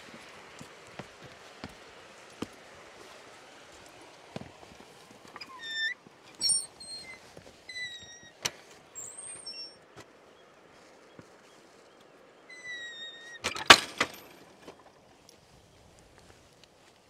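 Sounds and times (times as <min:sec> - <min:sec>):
short high whistled calls: 0:05.4 - 0:08.4, 0:09.0 - 0:09.8, 0:12.5 - 0:13.4.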